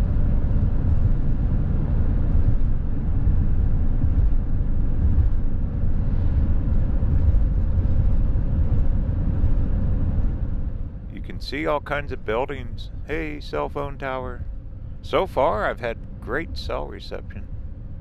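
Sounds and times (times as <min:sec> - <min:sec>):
van driving at highway speed: 0:00.0 - 0:18.0.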